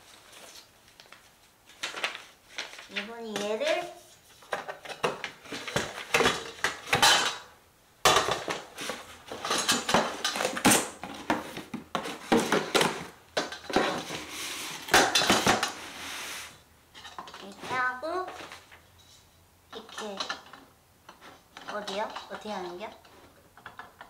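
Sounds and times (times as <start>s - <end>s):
paper and packaging rustling: 0.0s - 7.1s, 8.3s - 19.2s.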